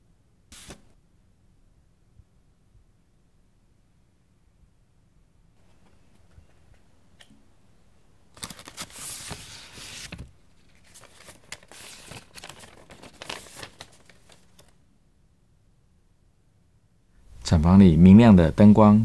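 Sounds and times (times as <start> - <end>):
paper rustling and crinkling: 8.3 - 14.8.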